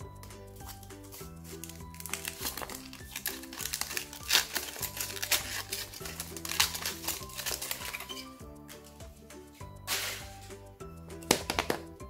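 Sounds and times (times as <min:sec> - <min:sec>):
background music with bass line: 0:00.0 - 0:12.0
foil wrapper crackling: 0:00.7 - 0:08.3.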